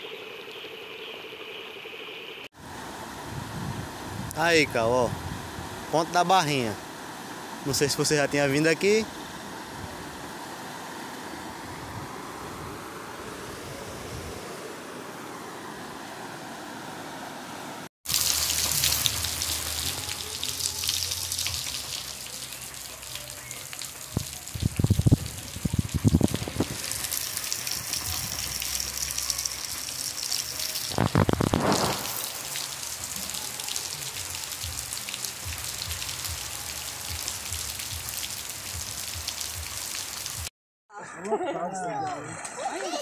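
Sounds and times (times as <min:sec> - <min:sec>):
rushing floodwater: 0:04.0 - 0:17.3, 0:18.1 - 0:39.4
rain on wet ground: 0:18.1 - 0:40.5.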